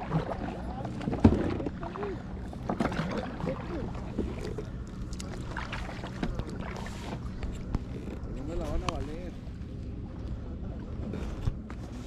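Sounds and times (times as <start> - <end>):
paddle splashing in water: 0.0 - 9.0.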